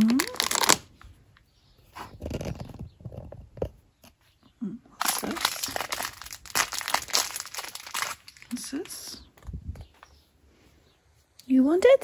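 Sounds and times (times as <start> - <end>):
packaging crinkling: 0.0 - 1.0, 5.0 - 9.1.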